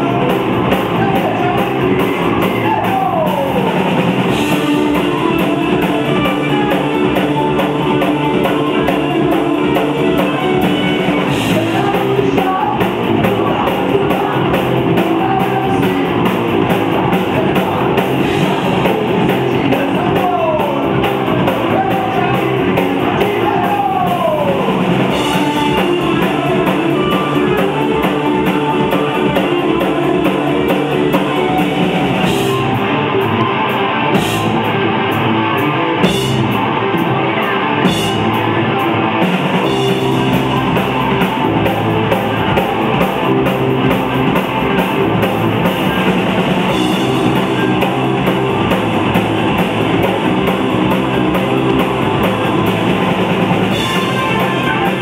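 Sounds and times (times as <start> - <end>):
drum kit: 0.0 - 55.0
electric guitar: 0.0 - 55.0.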